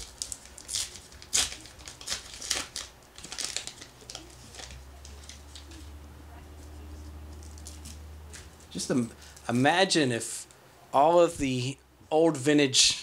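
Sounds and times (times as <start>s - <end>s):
foil wrapper tearing and crinkling: 0.0s - 5.8s, 7.4s - 8.4s.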